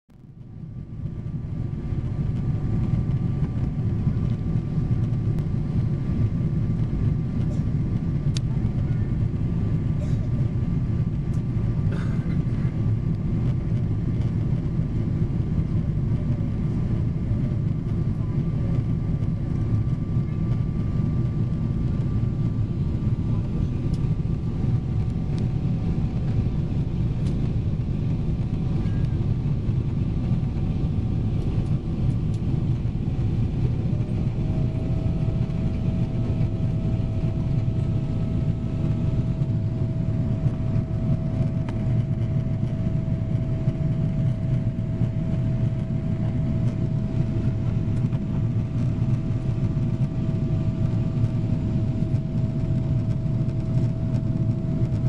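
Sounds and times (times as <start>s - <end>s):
steady hum: 0.2s - 55.0s
jet engines roaring: 21.0s - 55.0s.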